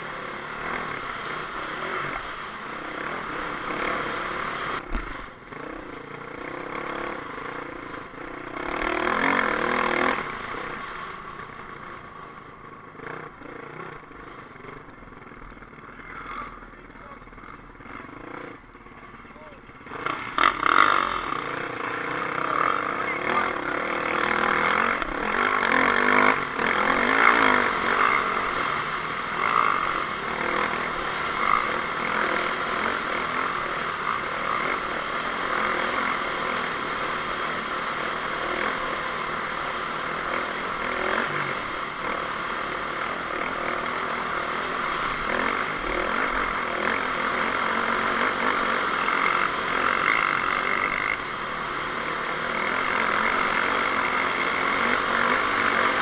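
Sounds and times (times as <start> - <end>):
dirt bike engine running: 0.0 - 56.0
wind and tyre noise: 0.0 - 56.0.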